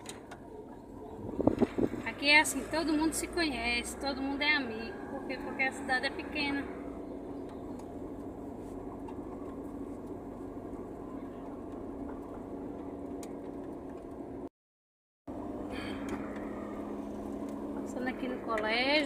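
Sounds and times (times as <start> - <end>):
car engine and road hum: 0.0 - 14.5, 15.3 - 19.0.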